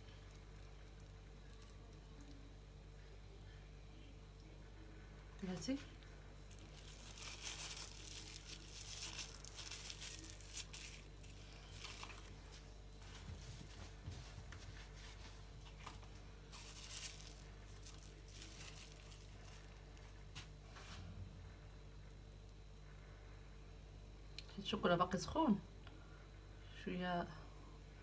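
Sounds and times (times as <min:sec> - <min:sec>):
low steady hum: 0:00.0 - 0:28.0
plastic bag crinkling: 0:06.5 - 0:12.6, 0:15.9 - 0:20.1.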